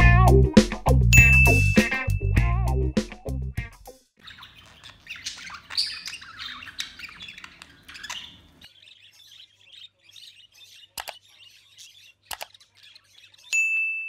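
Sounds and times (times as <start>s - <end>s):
budgerigars chirping and chattering: 4.2s - 13.5s
sharp clicks: 11.0s - 11.2s, 12.2s - 12.6s.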